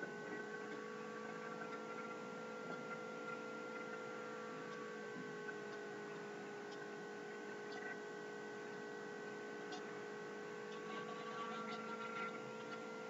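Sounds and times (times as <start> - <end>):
steady electrical hum: 0.0 - 13.0
faint clicks: 4.7 - 6.9.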